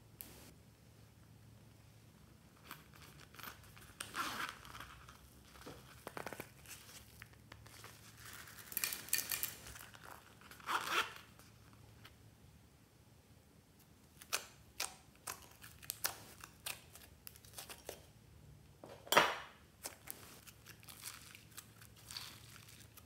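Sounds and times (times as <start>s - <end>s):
zipper being opened: 3.9s - 5.0s, 10.5s - 11.2s.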